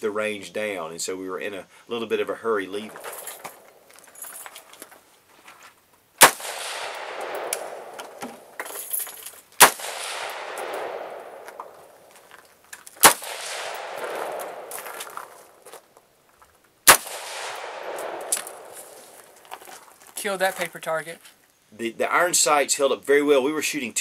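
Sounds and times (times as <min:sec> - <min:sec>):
rifle shots with echo: 0:06.2 - 0:08.6, 0:09.6 - 0:12.0, 0:13.0 - 0:15.2, 0:16.9 - 0:19.0.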